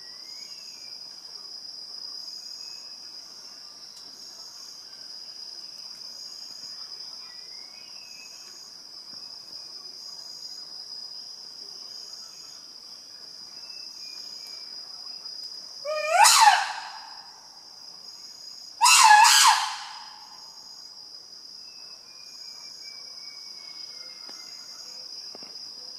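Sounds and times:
insects droning: 0:00.0 - 0:25.9
loud animal calls: 0:15.9 - 0:17.3, 0:18.8 - 0:20.4.

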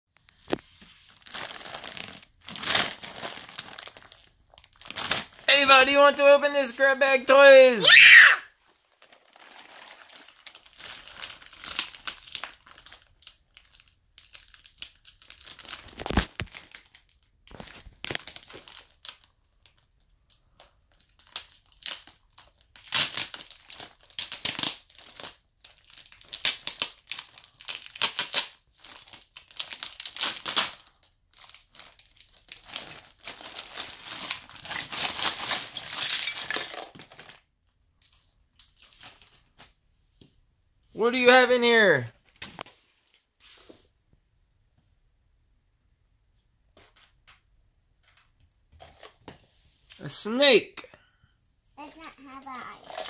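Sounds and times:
plastic bag crinkling: 0:00.3 - 0:06.7, 0:08.6 - 0:39.5, 0:52.3 - 0:53.0.

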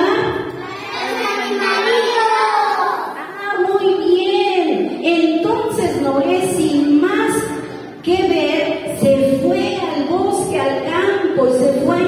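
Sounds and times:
children singing: 0:00.6 - 0:03.3.

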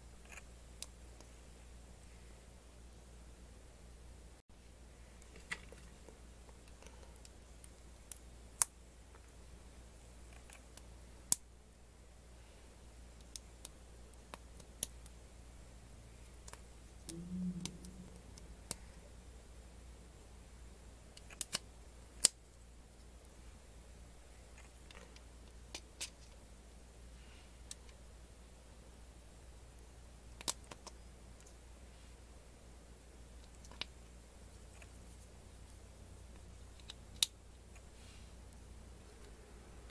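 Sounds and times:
low rub: 0:17.1 - 0:19.3.

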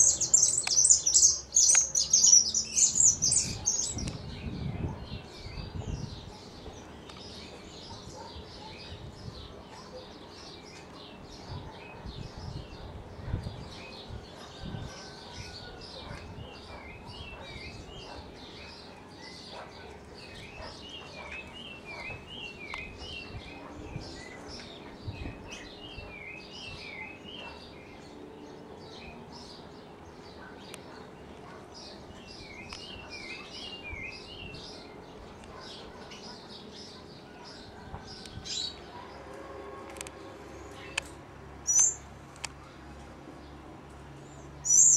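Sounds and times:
finch chirping: 0:00.0 - 0:06.6, 0:41.7 - 0:42.0, 0:44.6 - 0:44.9.

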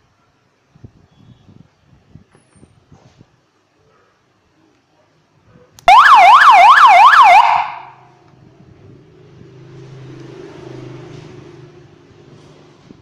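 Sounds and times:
electronic siren yelp: 0:05.9 - 0:08.0.

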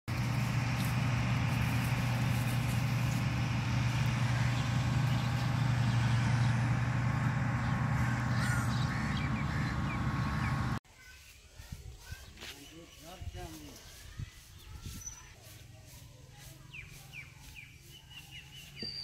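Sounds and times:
low hum: 0:00.1 - 0:10.8
bird calls: 0:00.7 - 0:10.8, 0:16.6 - 0:19.0.

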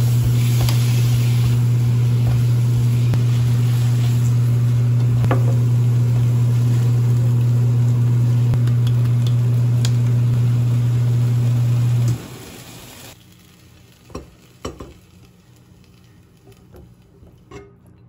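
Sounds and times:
utensils stirring in a pan: 0:00.0 - 0:05.4
appliance electric hum: 0:00.0 - 0:18.0.

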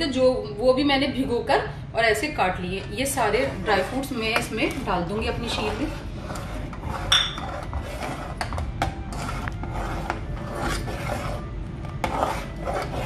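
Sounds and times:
metal spatula scraping pot: 0:02.8 - 0:13.0.

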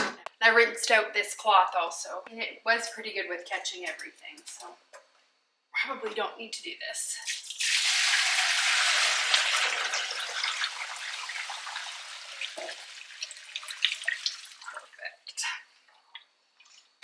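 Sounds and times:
liquid pouring and dripping: 0:07.2 - 0:15.1, 0:15.8 - 0:17.0.

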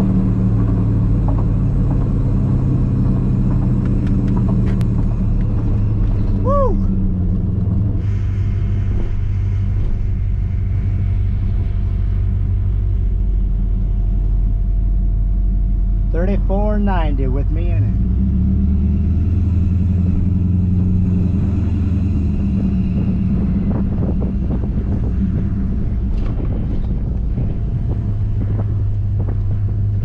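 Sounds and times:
vee eight engine rumbling: 0:00.0 - 0:30.0.

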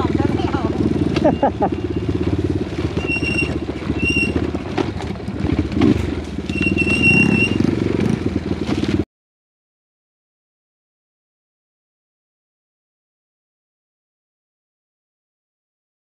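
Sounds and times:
motorcycle engine running: 0:00.0 - 0:09.0
short high squeaks: 0:03.0 - 0:04.5, 0:06.5 - 0:07.7.

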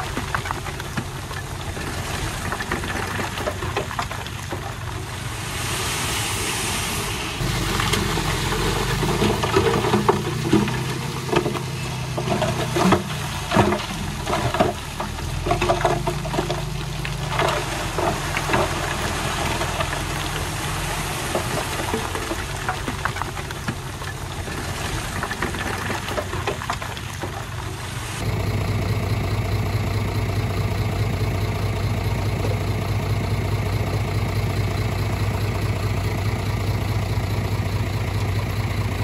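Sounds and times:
diesel engine of heavy machine: 0:00.0 - 0:39.0
brief hiss: 0:05.4 - 0:07.4
clanks and knocks: 0:08.9 - 0:20.4.

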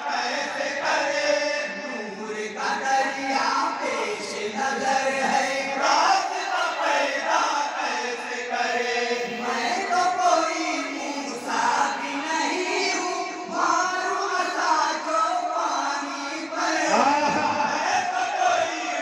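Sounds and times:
men singing together: 0:00.0 - 0:19.0.

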